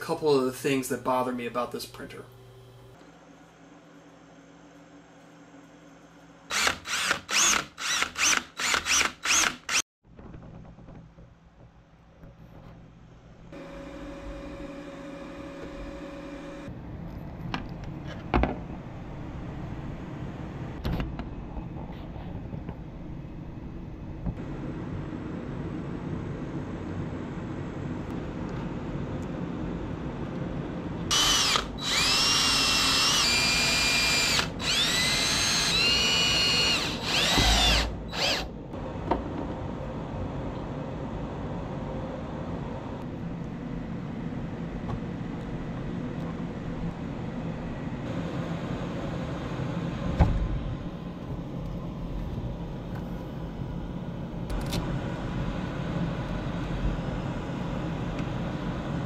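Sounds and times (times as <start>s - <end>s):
cordless drill whine: 6.5s - 9.8s, 31.1s - 38.5s.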